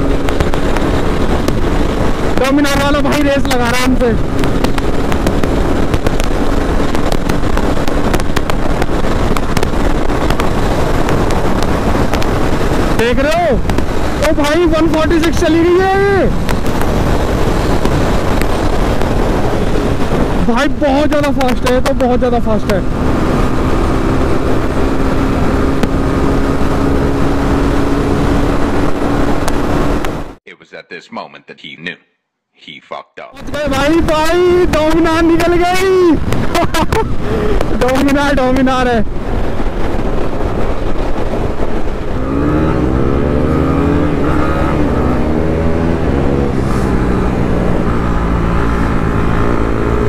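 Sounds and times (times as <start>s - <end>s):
motorcycle engine running hard: 0.0s - 30.4s, 33.6s - 50.0s
sharp crackles: 0.0s - 30.4s, 33.4s - 50.0s
wind rush on microphone: 0.0s - 30.4s, 33.4s - 50.0s.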